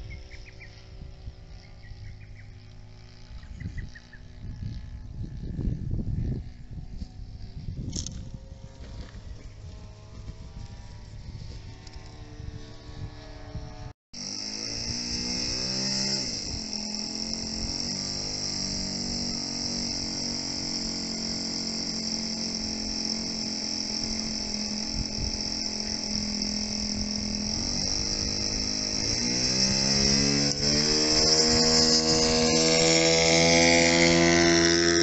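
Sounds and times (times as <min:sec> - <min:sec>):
insects buzzing: 0:00.0 - 0:35.0
model plane engine idling: 0:00.0 - 0:35.0.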